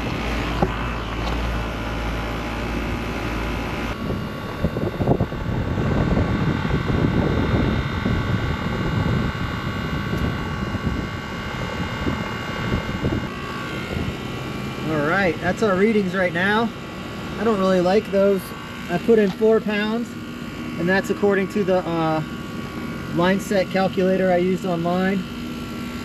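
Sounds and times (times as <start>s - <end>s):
wind rumble on microphone: 0.0s - 15.5s
air conditioning unit drone: 0.0s - 26.0s.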